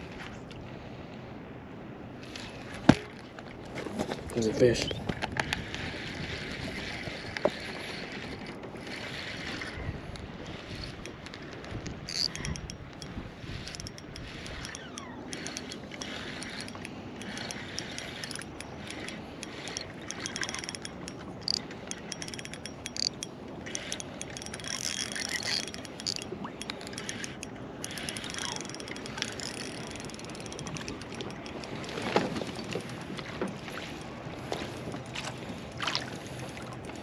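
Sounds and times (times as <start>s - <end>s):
fishing reel clicking: 8.4s - 32.8s.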